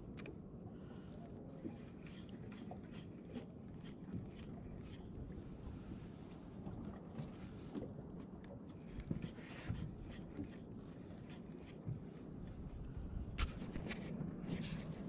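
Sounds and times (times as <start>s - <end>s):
boat engine low rumble: 0.0s - 15.0s.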